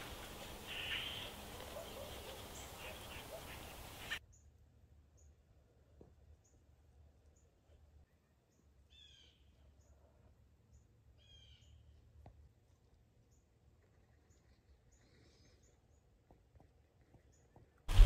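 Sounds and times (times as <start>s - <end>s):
faint bird chirps: 0.0s - 5.4s, 7.3s - 12.0s, 13.3s - 16.2s.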